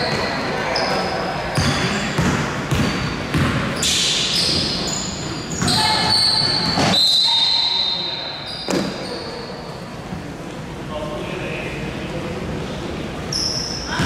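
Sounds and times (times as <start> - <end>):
shoe squeaks: 0.0 - 2.1, 2.7 - 10.0, 13.3 - 14.0
voices echoing: 0.0 - 14.0
basketball bouncing on gym floor: 1.6 - 3.8.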